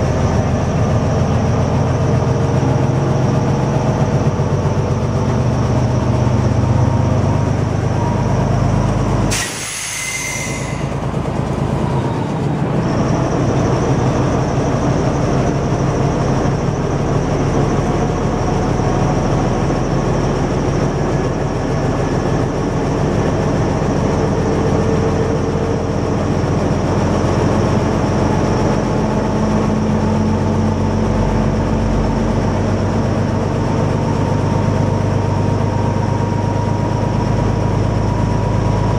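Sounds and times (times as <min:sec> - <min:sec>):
railcar engine drone: 0:00.0 - 0:38.9
short burst of hiss: 0:09.3 - 0:10.9.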